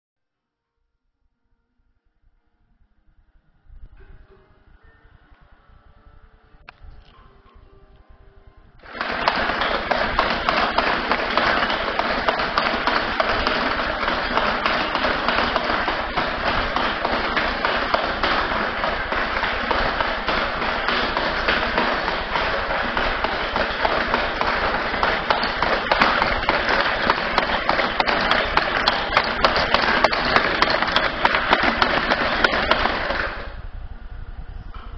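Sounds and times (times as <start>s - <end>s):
metal mechanism rattling: 8.8s - 33.6s.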